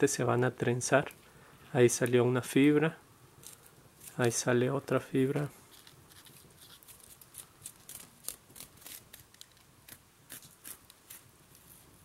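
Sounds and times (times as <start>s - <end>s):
leaf fibers ripping: 5.7s - 11.3s.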